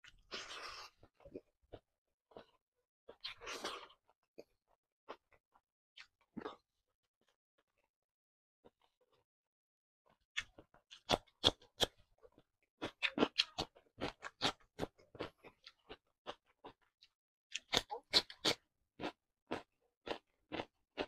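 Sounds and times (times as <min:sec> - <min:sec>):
crunching cucumber: 0:17.5 - 0:21.0.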